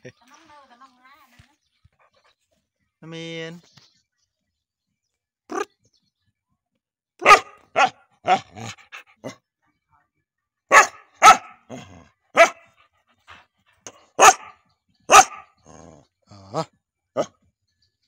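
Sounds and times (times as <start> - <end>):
dog barking: 7.2 - 9.4, 10.7 - 12.7, 13.9 - 15.8.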